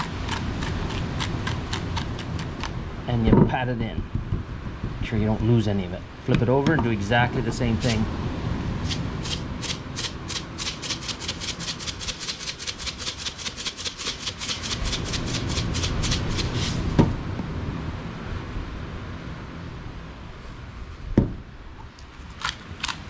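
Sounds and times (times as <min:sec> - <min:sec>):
plastic shaker rattling: 0:08.9 - 0:17.0.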